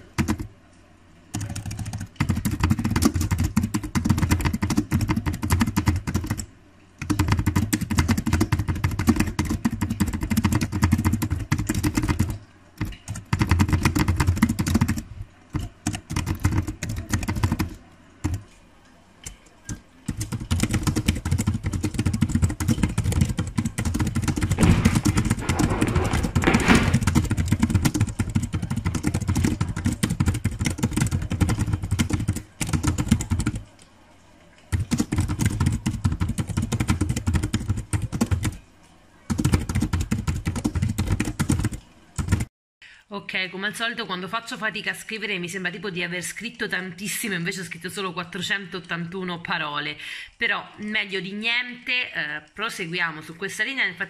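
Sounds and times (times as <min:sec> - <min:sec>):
rapid typing on keyboard: 0:00.0 - 0:00.5, 0:01.3 - 0:18.6, 0:19.6 - 0:33.8, 0:34.6 - 0:38.6, 0:39.2 - 0:42.5.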